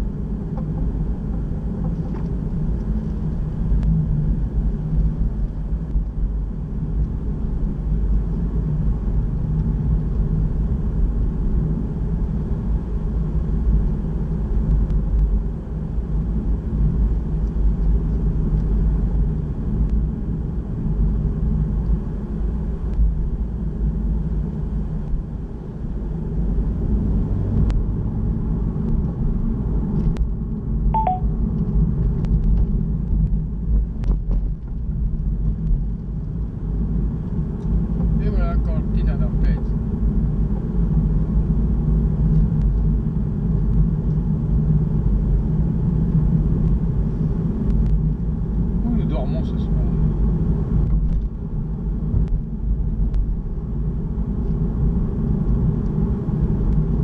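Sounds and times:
car engine and road noise: 0:00.0 - 0:57.0
faint short chirp: 0:31.0 - 0:31.3.

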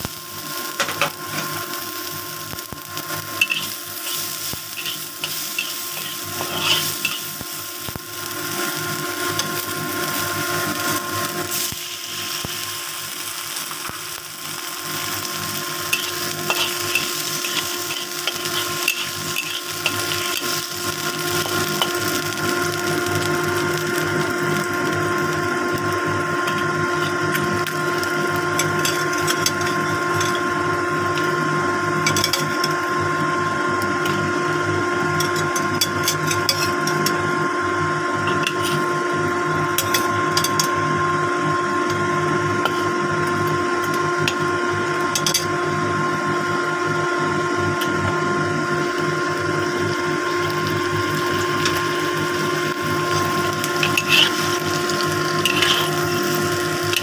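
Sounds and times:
small motor humming: 0:00.8 - 0:31.4, 0:47.8 - 0:57.0
metal spatula scraping a wok: 0:03.4 - 0:07.4, 0:15.9 - 0:20.6, 0:38.3 - 0:38.9, 0:53.2 - 0:56.4.

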